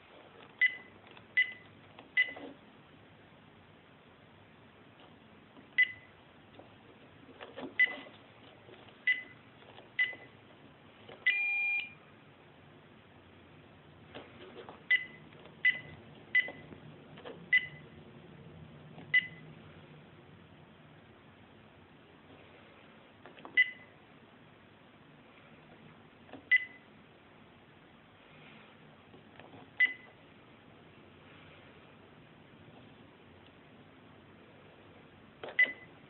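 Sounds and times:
short high beeps: 0:11.3 - 0:12.0.

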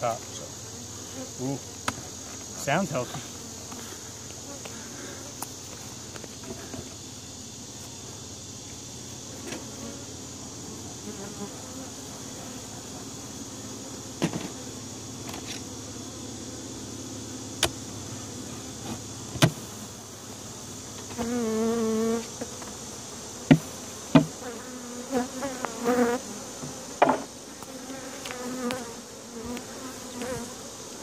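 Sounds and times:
bee colony buzzing: 0:00.0 - 0:31.0
single bees flying past: 0:00.6 - 0:08.5, 0:09.1 - 0:31.0
knocks and clicks of hive handling: 0:01.8 - 0:02.5, 0:14.2 - 0:14.6, 0:17.6 - 0:17.8, 0:18.8 - 0:19.6, 0:23.5 - 0:24.4, 0:26.6 - 0:30.5.

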